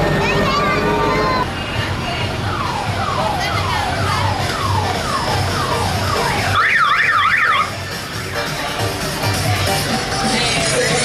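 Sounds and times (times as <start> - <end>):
electronic horn siren whoops: 6.6 - 7.7.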